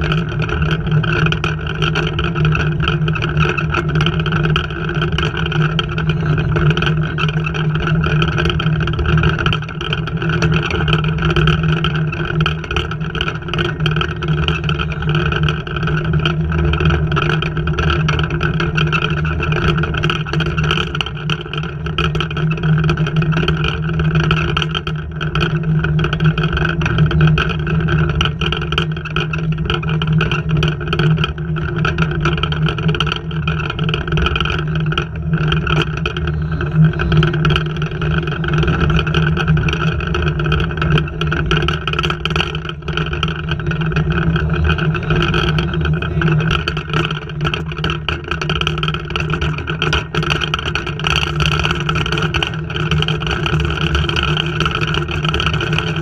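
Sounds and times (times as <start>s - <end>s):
loud steady drone: 0.0s - 56.0s.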